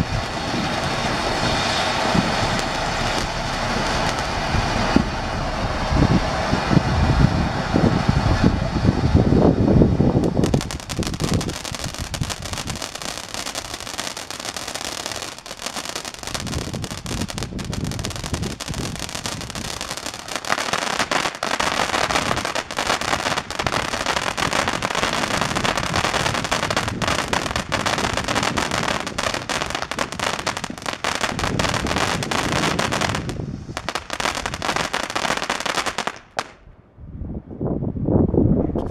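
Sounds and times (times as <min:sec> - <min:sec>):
firework crackling: 0:00.0 - 0:08.7, 0:10.0 - 0:36.6
firework fountain hissing: 0:00.0 - 0:36.6.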